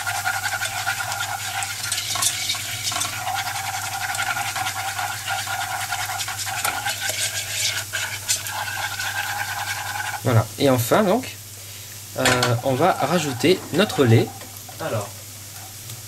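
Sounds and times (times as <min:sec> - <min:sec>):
whisk scraping a saucepan: 0:00.0 - 0:10.4, 0:12.3 - 0:14.6.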